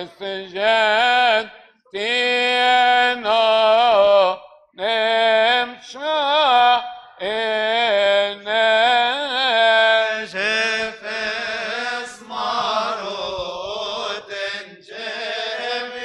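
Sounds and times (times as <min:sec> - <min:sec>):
men chanting unaccompanied: 0:09.6 - 0:16.0.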